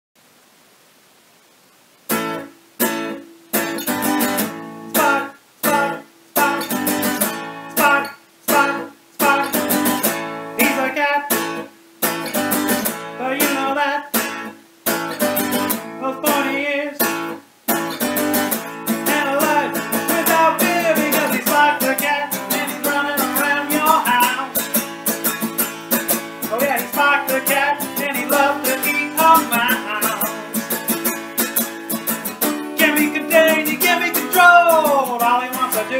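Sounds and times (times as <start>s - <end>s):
acoustic guitar strumming: 2.1s - 35.9s
man's voice: 4.9s - 7.1s, 7.8s - 9.8s, 10.6s - 11.4s, 13.2s - 14.2s, 16.0s - 17.0s, 19.0s - 24.6s, 26.4s - 30.7s, 32.8s - 35.9s.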